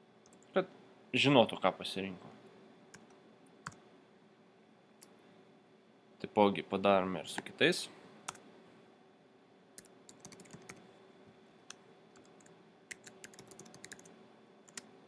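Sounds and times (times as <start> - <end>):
faint computer keyboard typing: 0.2 - 0.5, 2.9 - 3.8, 9.8 - 10.9, 11.7 - 14.9.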